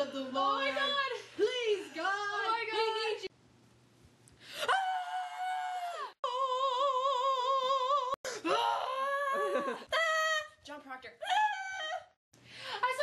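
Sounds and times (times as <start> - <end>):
women singing long high notes: 0.0 - 3.3, 5.0 - 8.2.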